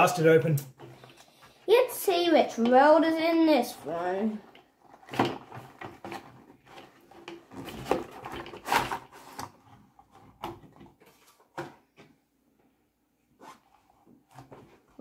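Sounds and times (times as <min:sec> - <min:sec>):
cardboard toy box packaging handled: 0:04.4 - 0:11.6.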